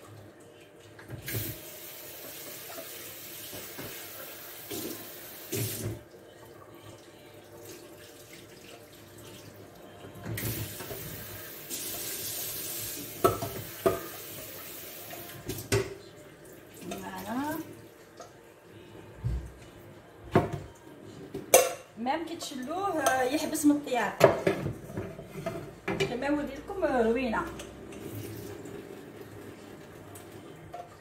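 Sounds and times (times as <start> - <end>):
tap running into a sink: 1.0 - 6.0, 10.2 - 16.0.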